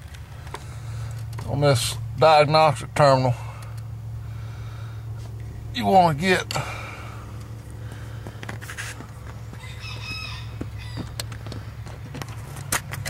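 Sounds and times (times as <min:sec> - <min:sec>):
steady low hum: 0:00.0 - 0:13.0
rooster crowing: 0:09.4 - 0:11.3.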